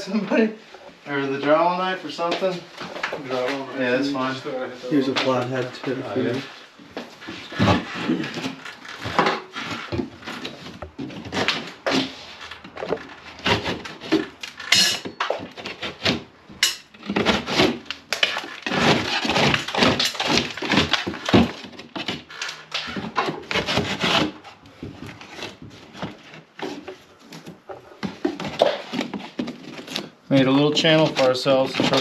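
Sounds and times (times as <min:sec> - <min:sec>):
wood cracking and splintering: 0:16.9 - 0:24.5.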